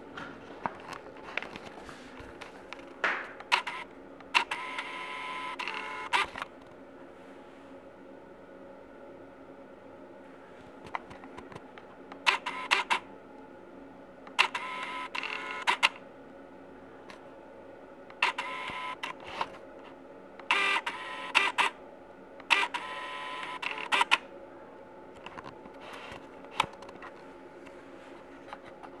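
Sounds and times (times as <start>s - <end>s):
autofocus motor whirring: 3.4s - 6.5s, 14.3s - 16.0s, 18.2s - 19.6s, 20.4s - 21.8s, 22.4s - 24.2s.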